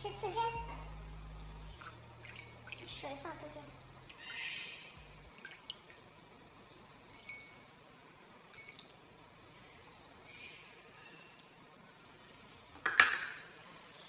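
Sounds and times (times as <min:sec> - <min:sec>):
liquid dripping into glass bowl: 0:07.1 - 0:07.6, 0:08.5 - 0:09.0.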